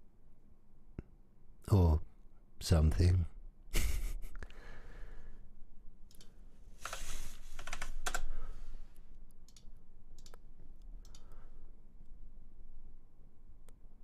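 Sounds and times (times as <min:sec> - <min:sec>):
mouse and keyboard clicks: 0:06.1 - 0:08.3, 0:09.5 - 0:11.4.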